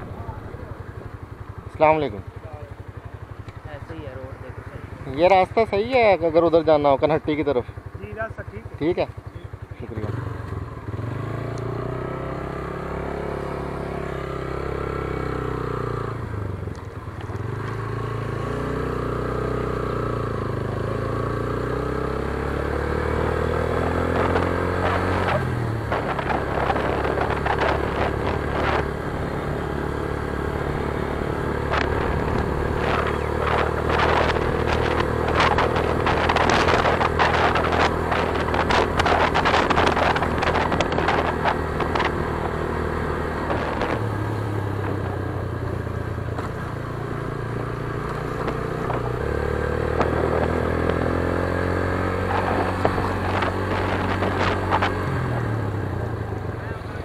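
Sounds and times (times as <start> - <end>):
motorcycle engine accelerating: 0.0 - 57.0
wind buffeting microphone: 22.2 - 56.7.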